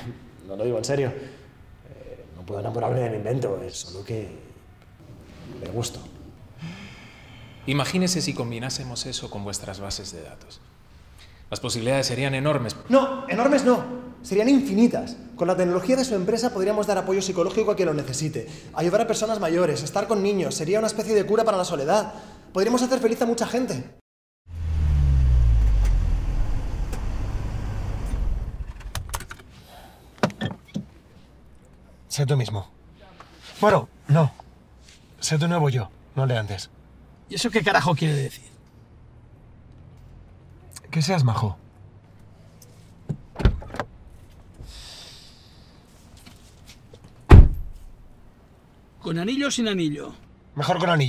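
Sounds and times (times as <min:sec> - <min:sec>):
car engine rumbling: 0:24.5 - 0:29.4.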